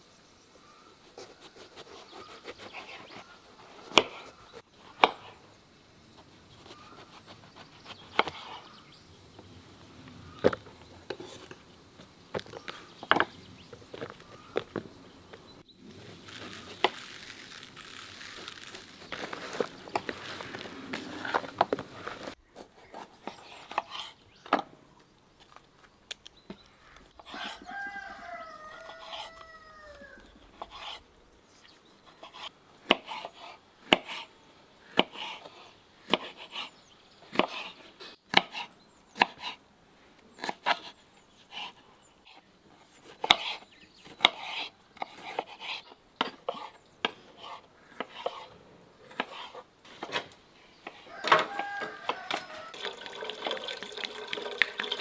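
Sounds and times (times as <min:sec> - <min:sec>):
rooster crowing: 0:27.3 - 0:30.4, 0:51.0 - 0:53.1.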